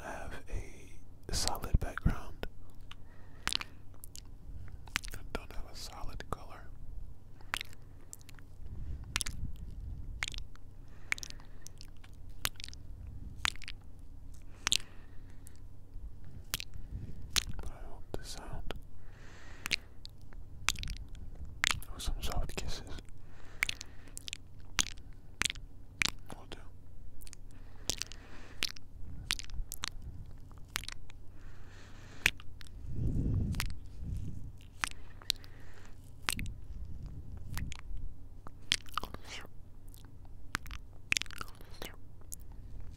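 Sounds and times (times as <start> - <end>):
low rumble: 0.0 - 19.2, 19.9 - 42.9
wet lip smacks: 2.7 - 5.6, 7.4 - 15.7, 16.3 - 17.8, 18.4 - 42.9
breathy hiss: 18.1 - 20.0.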